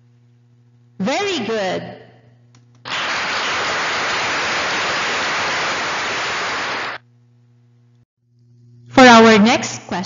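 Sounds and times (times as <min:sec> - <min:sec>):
faint hum: 0:00.0 - 0:10.0
loud hiss-like noise: 0:02.9 - 0:07.0.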